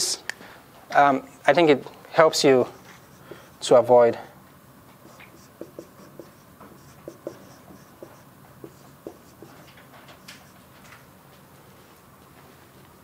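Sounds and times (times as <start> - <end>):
marker squeaking on whiteboard: 2.6 - 3.6, 4.6 - 11.1.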